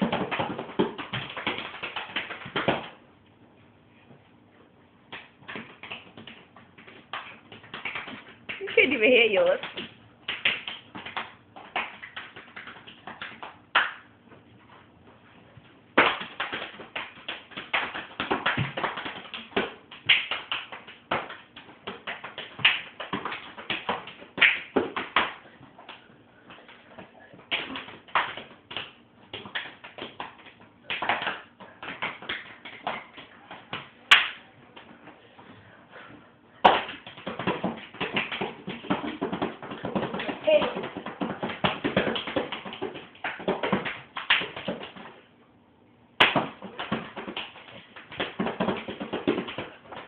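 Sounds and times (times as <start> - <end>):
hands patting and slapping clothing: 0.0 - 3.0, 5.0 - 45.2, 46.2 - 50.0.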